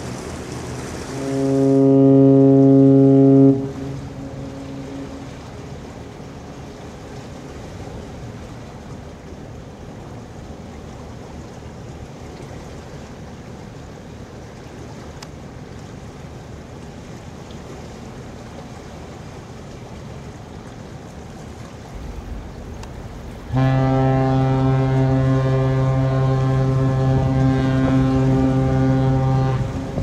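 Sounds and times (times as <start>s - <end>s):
ship's horn deep blast: 0.0s - 6.3s, 21.9s - 30.0s
water noise: 0.0s - 30.0s
wind: 0.0s - 30.0s.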